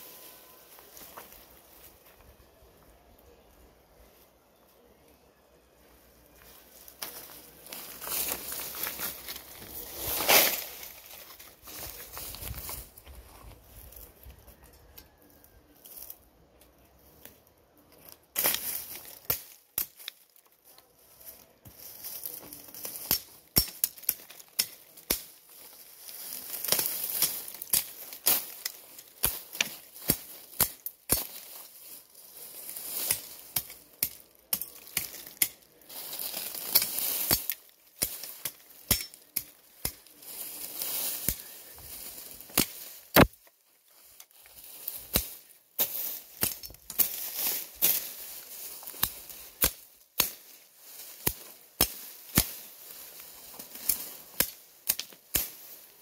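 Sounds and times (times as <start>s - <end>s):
grass rustling and tearing: 6.3s - 16.2s, 17.1s - 56.0s
machete chopping into soil: 42.4s - 43.4s, 48.9s - 52.7s.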